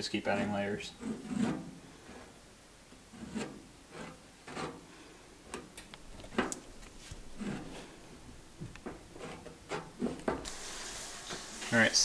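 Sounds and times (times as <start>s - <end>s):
spreader scraping filler on metal: 0.3s - 2.4s, 3.1s - 5.6s, 7.0s - 8.1s, 9.1s - 11.8s.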